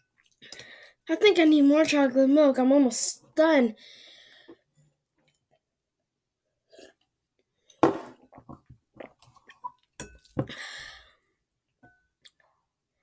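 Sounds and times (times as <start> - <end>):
utensil clinking on dish: 10.0 - 10.4.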